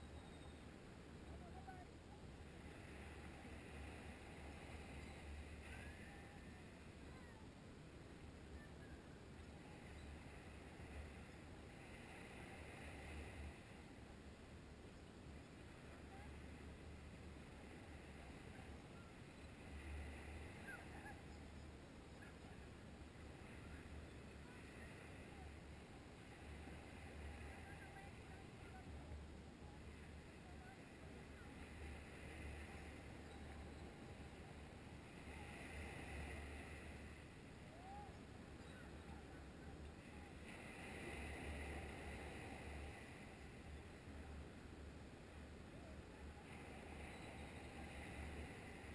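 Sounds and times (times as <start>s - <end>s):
faint bird chirps: 0.0s - 1.8s, 8.5s - 10.6s, 20.4s - 22.7s, 37.7s - 39.8s, 46.9s - 48.4s
faint surf on shore: 0.0s - 48.9s
wind rumble on microphone: 0.0s - 48.9s.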